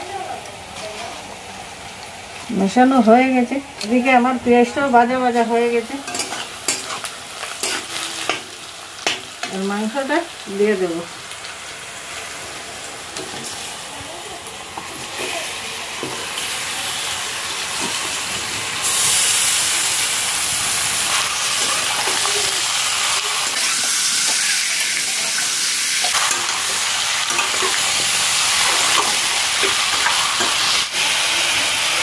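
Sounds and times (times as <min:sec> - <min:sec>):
meat sizzling in hot oil: 0:00.4 - 0:32.0
spatula scraping pan: 0:06.1 - 0:08.5.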